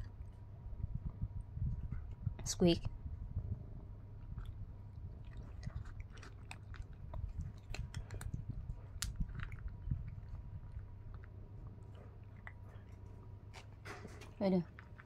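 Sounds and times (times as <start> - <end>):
cats crunching dry food: 4.2 - 15.0.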